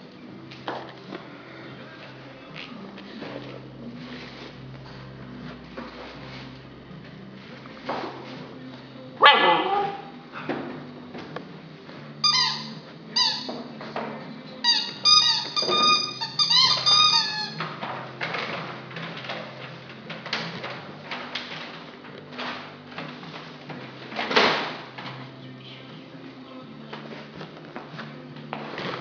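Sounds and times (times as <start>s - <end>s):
squeaky toy squeaking: 12.2s - 13.5s, 14.6s - 17.6s.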